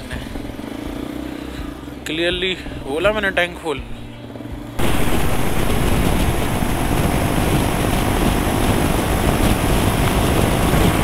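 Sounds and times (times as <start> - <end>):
motorcycle engine running: 0.0 - 3.2, 3.8 - 11.0
wind rushing over microphone: 4.8 - 11.0.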